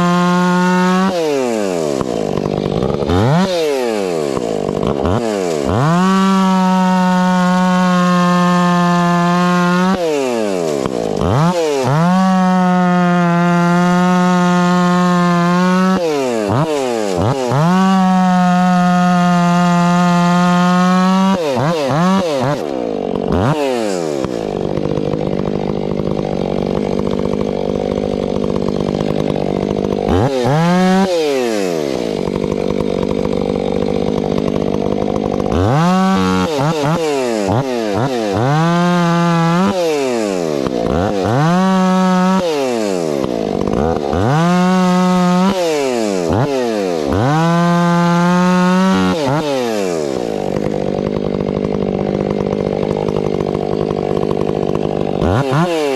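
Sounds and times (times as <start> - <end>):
chainsaw idling and revving: 0.0 - 55.9.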